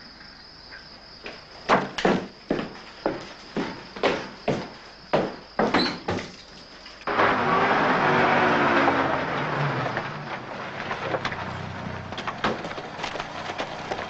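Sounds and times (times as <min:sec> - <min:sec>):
car driving up and stopping: 0:07.0 - 0:14.0.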